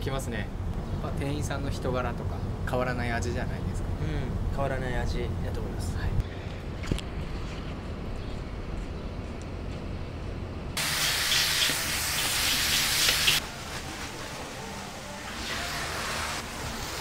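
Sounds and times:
low street hum: 0.0 - 10.8
meat sizzling in wok: 10.8 - 17.0.

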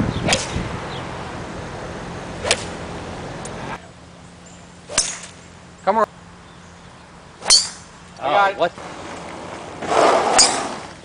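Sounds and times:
low hum background noise: 0.0 - 9.8
golf club striking ball: 2.4 - 2.8, 4.9 - 5.5, 7.4 - 8.0.

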